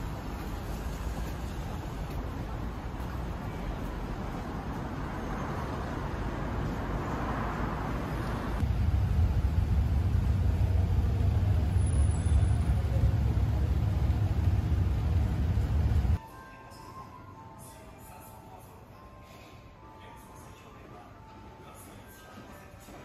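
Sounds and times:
city background noise: 0.0s - 23.0s
heavy low rumble: 8.6s - 16.2s.

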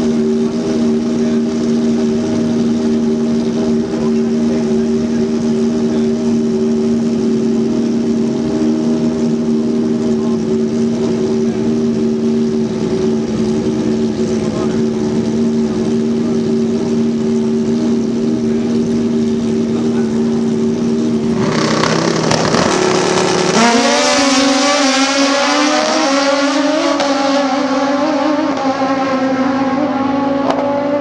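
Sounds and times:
motorcycle engine idling and revving: 0.0s - 31.0s.

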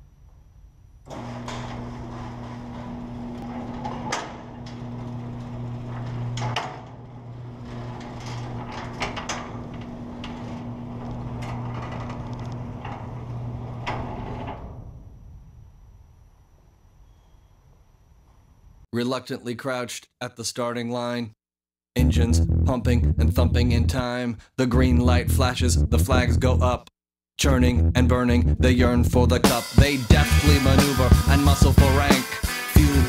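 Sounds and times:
garage door opener motor hum: 1.0s - 18.5s
garage door panels rattling and clanking: 1.1s - 15.1s.

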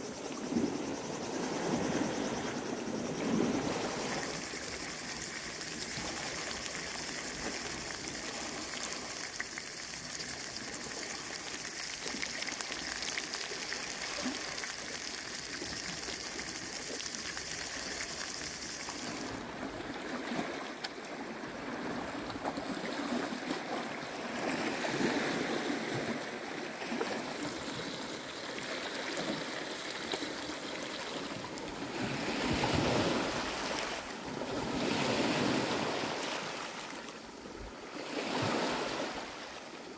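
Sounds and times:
steady high hiss: 0.0s - 19.6s
sea waves lapping on rocks: 3.2s - 39.7s.

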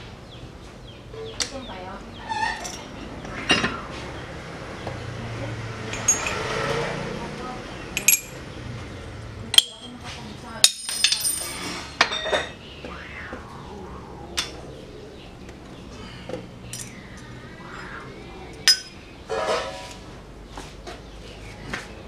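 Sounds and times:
metal parts clinking on steel: 8.0s - 8.4s.

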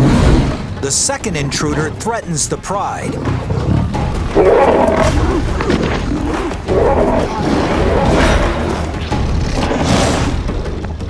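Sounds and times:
dramatic music: 0.0s - 11.0s
lions snarling and growling: 3.0s - 10.6s.

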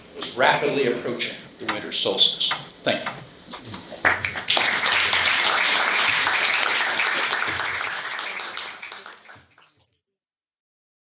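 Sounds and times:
audience applauding: 3.9s - 9.8s.

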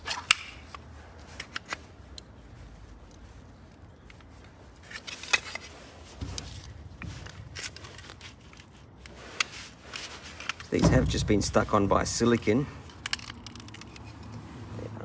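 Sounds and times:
plastic housing clicks and scrapes: 0.0s - 2.3s, 12.3s - 14.5s
dull knocks: 10.8s - 12.0s.

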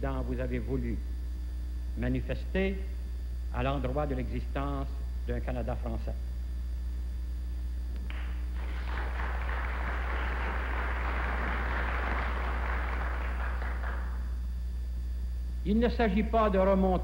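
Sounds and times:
steady low hum: 0.0s - 17.0s
audience applause: 8.1s - 14.3s.

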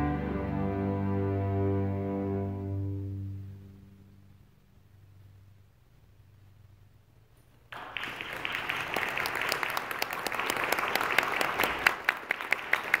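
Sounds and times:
audience applause: 7.8s - 13.0s.

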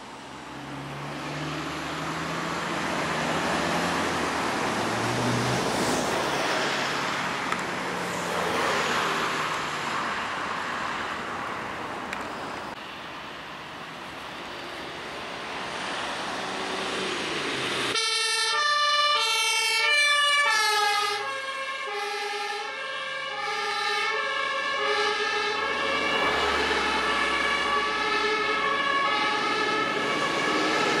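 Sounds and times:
road noise of vehicle: 0.0s - 31.0s
two-tone ambulance siren: 17.9s - 31.0s.

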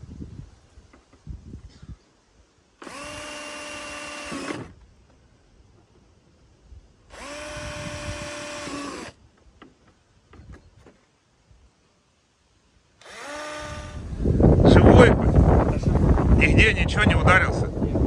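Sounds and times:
cordless drill whining: 2.8s - 4.8s, 7.1s - 9.2s, 13.0s - 14.2s.

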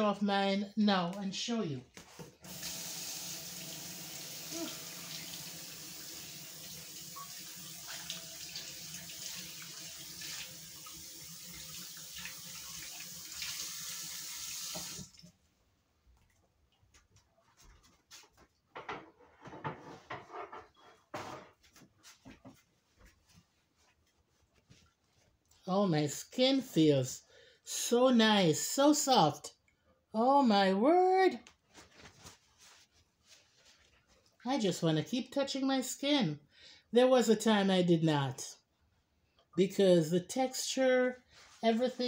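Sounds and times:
tap water running into sink: 2.4s - 15.3s
soft handling sounds: 20.7s - 25.7s, 31.4s - 34.4s.

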